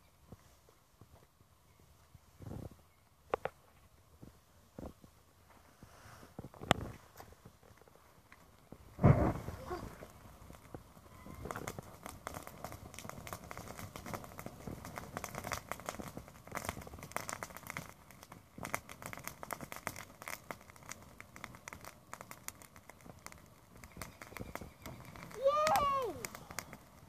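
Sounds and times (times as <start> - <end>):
brush fire crackling: 0.0 - 27.0.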